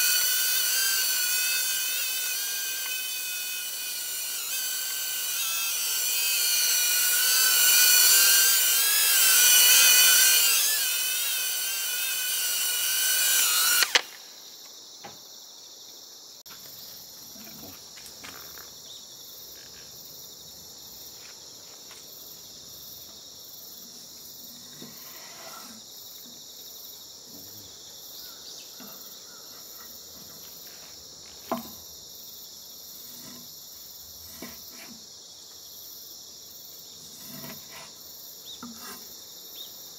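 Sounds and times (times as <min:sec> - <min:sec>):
drone propellers whining: 0:00.0 - 0:14.1
high insect chorus: 0:00.0 - 0:39.9.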